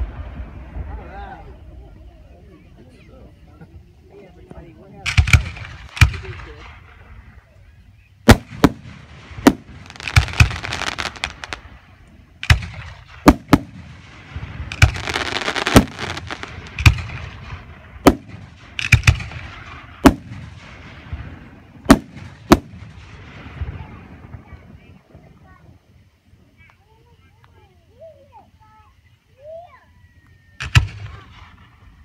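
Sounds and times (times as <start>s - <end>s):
firework shells bursting: 5.0s - 7.1s, 8.2s - 23.6s
rough hiss: 5.0s - 25.5s.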